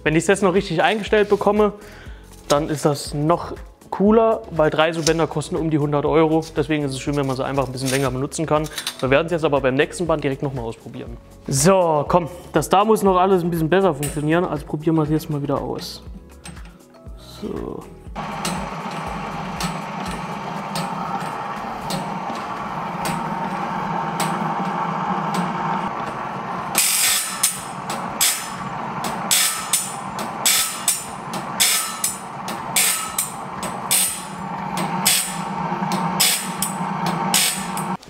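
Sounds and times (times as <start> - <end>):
grinding wheel on saw teeth: 18.2 - 38.0
machine motor hum: 18.2 - 38.0
light regular ticking: 27.4 - 38.0.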